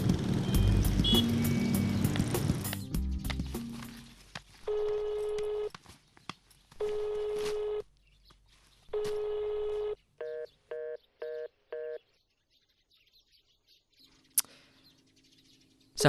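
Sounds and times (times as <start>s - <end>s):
phone ringback beeps: 4.7s - 5.7s, 6.8s - 7.8s, 9.0s - 12.0s.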